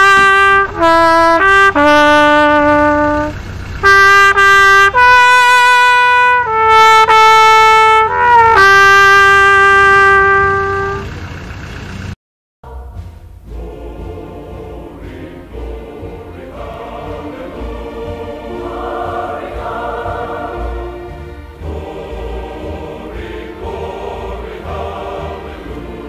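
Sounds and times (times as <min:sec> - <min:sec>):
solo trumpet playing slow tune: 0:00.0 - 0:11.1.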